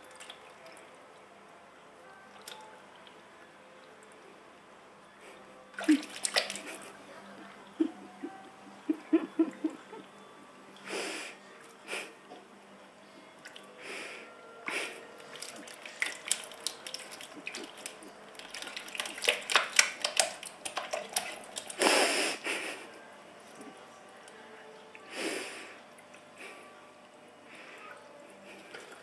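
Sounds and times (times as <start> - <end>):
faint steady hum: 0.0 - 29.0
kitten paws splashing water: 5.8 - 7.0, 15.2 - 21.9.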